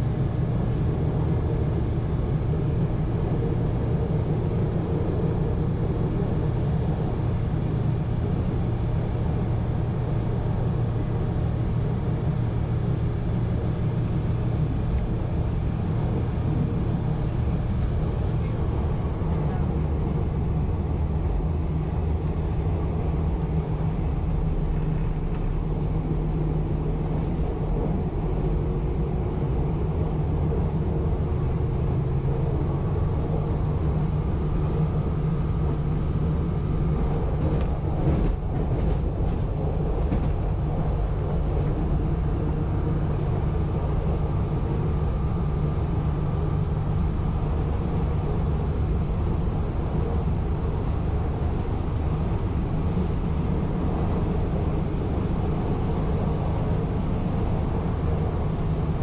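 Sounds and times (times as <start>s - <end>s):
railcar engine drone: 0.0s - 59.0s
wheel-on-rail rumble: 0.0s - 59.0s.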